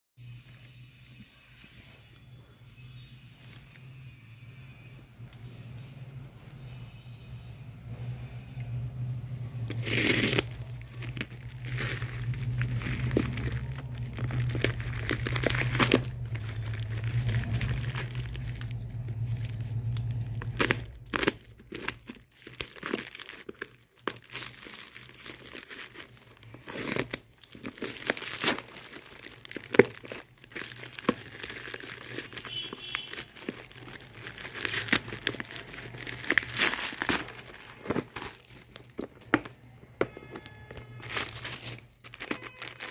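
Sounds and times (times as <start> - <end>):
plastic mailer tearing and crinkling: 9.6 - 39.7, 40.3 - 42.9
scissors cutting plastic: 9.7 - 39.5, 40.1 - 42.9.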